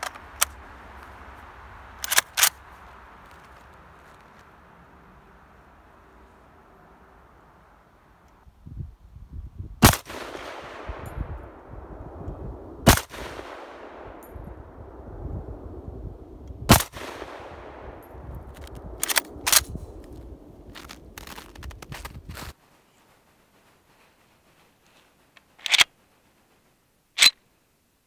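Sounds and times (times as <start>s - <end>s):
rifle handling clacks: 0.0s - 0.6s, 2.0s - 2.6s, 18.5s - 22.5s, 25.4s - 25.9s
rifle shots with echo: 9.8s - 15.0s, 16.7s - 19.8s.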